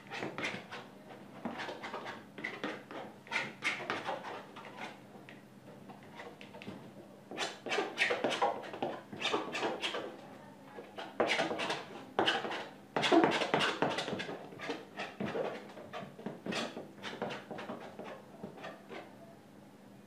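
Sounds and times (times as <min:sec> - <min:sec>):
palette knife scraping canvas: 0:00.0 - 0:05.0, 0:07.3 - 0:10.1, 0:10.9 - 0:19.1.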